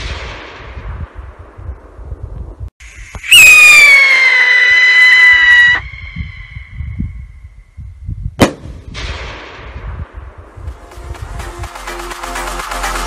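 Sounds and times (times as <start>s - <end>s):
rocket bang: 0.0s - 2.0s, 8.4s - 10.7s
rocket whistle: 3.1s - 7.0s.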